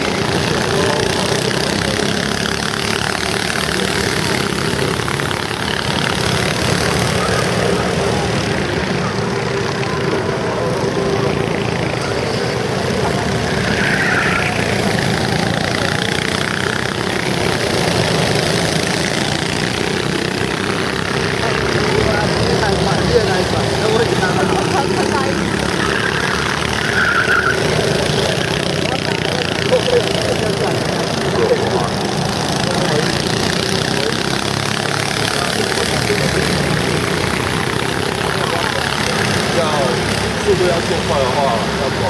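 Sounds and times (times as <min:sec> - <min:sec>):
go-kart engines running: 0:00.0 - 0:42.0.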